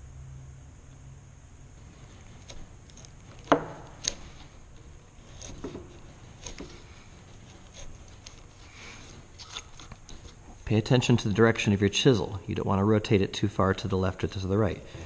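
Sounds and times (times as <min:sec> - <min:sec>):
chisel scraping through wood: 0:01.9 - 0:10.5.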